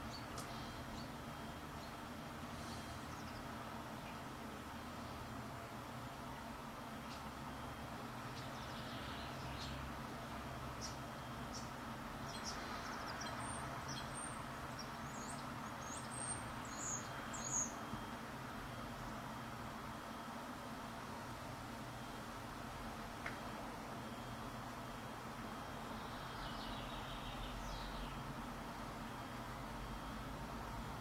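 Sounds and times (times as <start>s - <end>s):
tits calling: 0.0s - 4.2s, 8.2s - 10.0s, 10.6s - 18.1s, 25.7s - 28.3s
low background noise: 0.0s - 31.0s.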